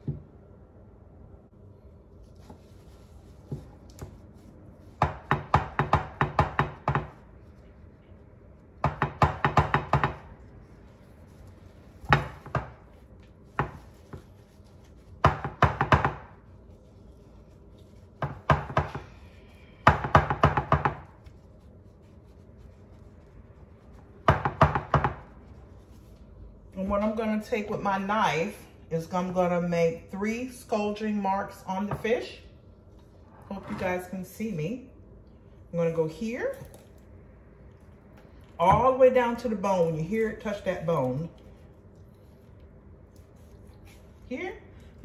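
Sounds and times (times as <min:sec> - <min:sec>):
knife chopping on cutting board: 0:05.0 - 0:07.2, 0:08.8 - 0:10.3, 0:12.0 - 0:14.3, 0:15.2 - 0:16.4, 0:18.2 - 0:19.1, 0:24.2 - 0:25.4.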